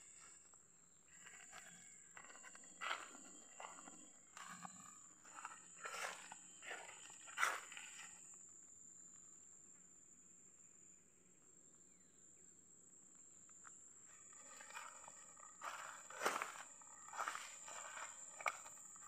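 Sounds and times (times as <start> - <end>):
footsteps crunching on dry leaves: 14.4 - 19.0.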